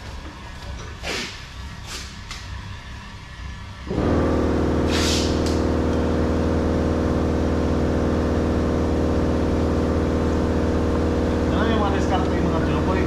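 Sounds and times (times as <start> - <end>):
compressor motor humming: 0.0 - 13.0
air hiss: 1.0 - 2.2, 4.8 - 5.6.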